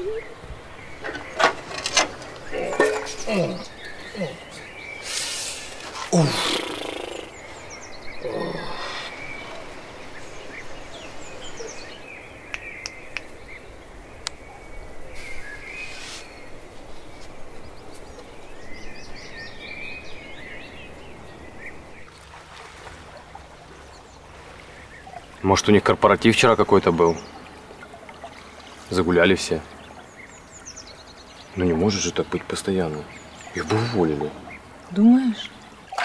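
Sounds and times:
birds chirping: 0.0 - 36.0
short falling cry: 6.1 - 7.3.

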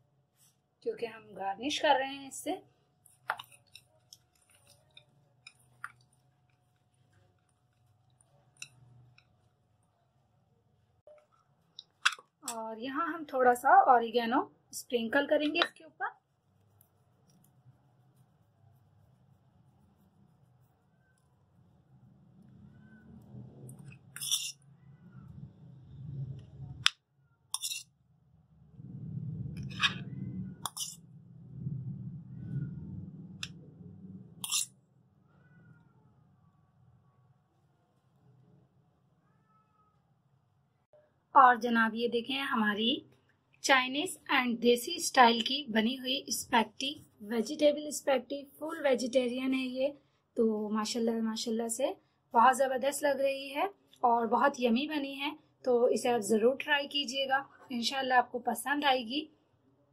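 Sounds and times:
spatula scraping in metal bowl: 23.7 - 24.7, 27.5 - 28.0, 29.6 - 31.2, 34.4 - 34.8
metal spoon clinking on steel bowl: 27.6 - 27.8, 30.6 - 31.0, 34.4 - 34.7
steady low hum: 28.3 - 34.6.

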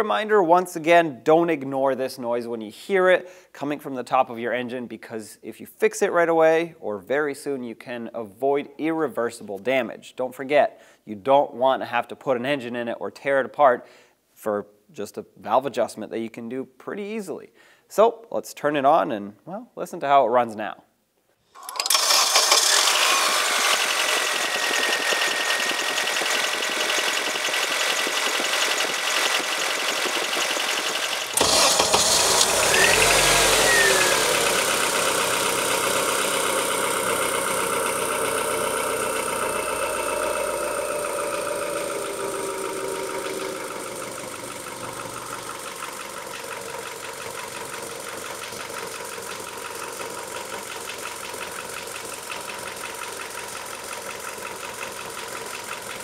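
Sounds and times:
engine starting and revving: 21.6 - 56.0
car engine idling with ticking: 26.8 - 38.6, 44.5 - 56.0.

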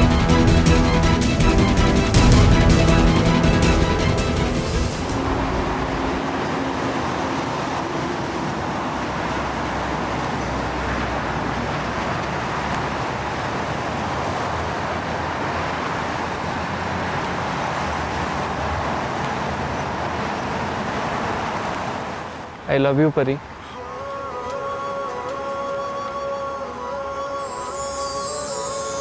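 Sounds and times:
motorbikes and scooters passing: 3.4 - 22.6.

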